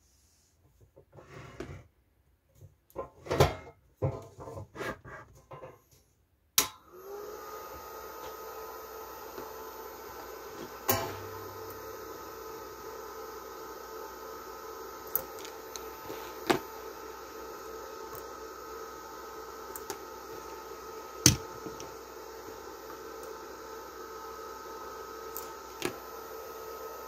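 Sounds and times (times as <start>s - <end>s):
welding inverter hum: 6.6s - 27.0s.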